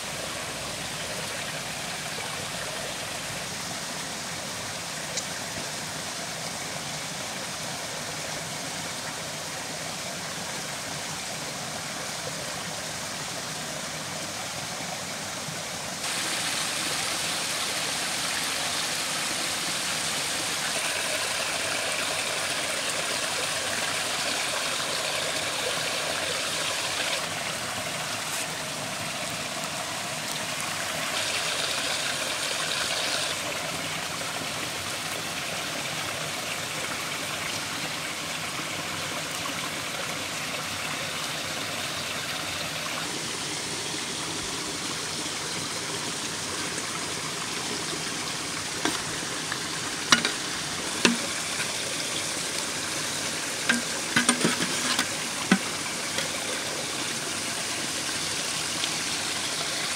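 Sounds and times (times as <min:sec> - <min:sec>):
forest stream rushing: 0:00.0 - 0:59.9.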